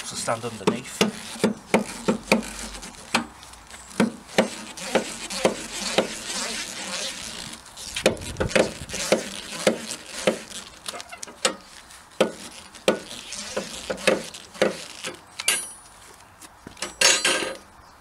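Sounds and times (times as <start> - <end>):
car jack squeaks: 0.6 - 15.8
car jack metallic clunks: 16.8 - 17.6.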